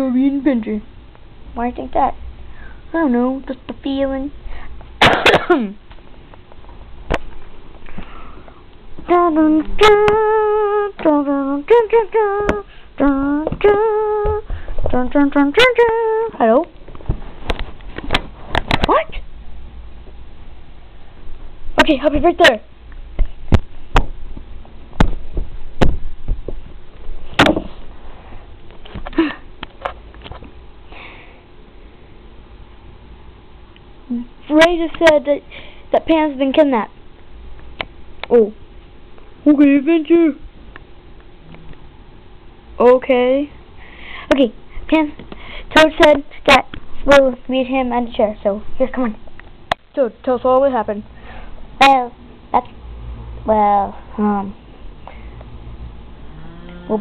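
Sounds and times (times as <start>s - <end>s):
sharp knocks and bumps: 27.3s - 27.8s.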